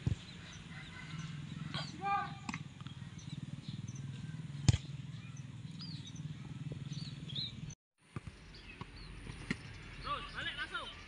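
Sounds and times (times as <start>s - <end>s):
football being kicked: 0.0s - 0.2s, 4.6s - 4.9s.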